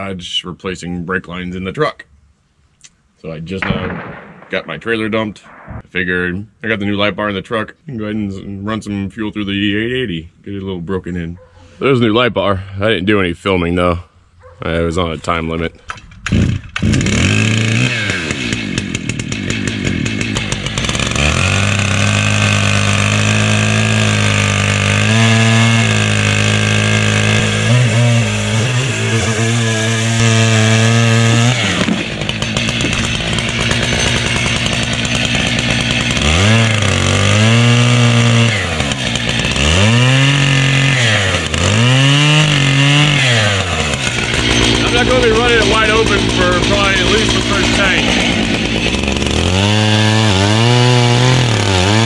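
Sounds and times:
chainsaw revving and cutting: 16.3 - 52.0.

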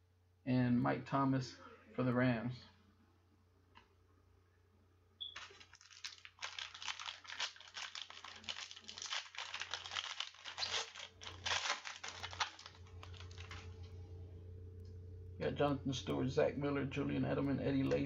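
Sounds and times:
wrapper tearing and crinkling: 5.4 - 13.9.

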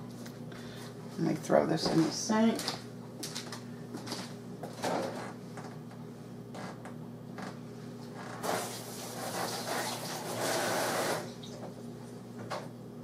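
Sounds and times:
steady low hum: 11.2 - 13.0.

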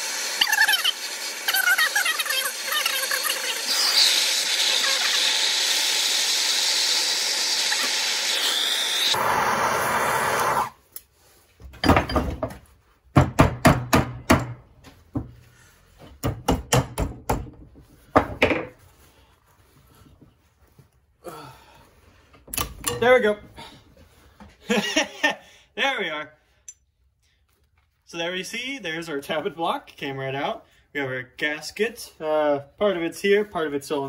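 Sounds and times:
gas torch hissing: 0.0 - 10.8.

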